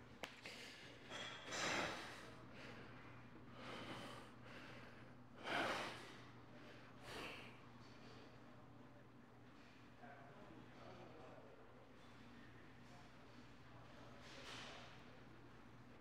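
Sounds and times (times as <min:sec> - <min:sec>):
man breathing hard: 0:01.5 - 0:07.6.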